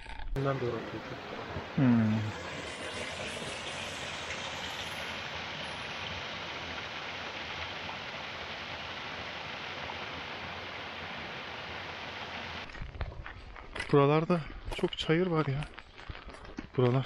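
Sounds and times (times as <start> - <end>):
water trickling into a pool: 0.4 - 12.7.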